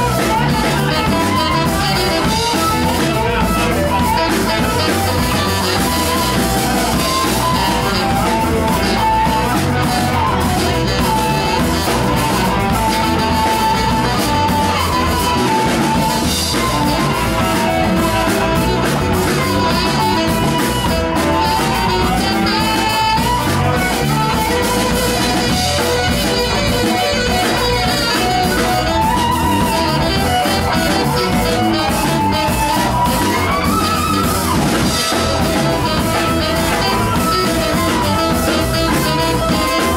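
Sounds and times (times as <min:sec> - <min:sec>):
drum kit groove: 0:00.0 - 0:39.9
electric guitars: 0:00.0 - 0:39.9
lead guitar line: 0:00.0 - 0:39.9.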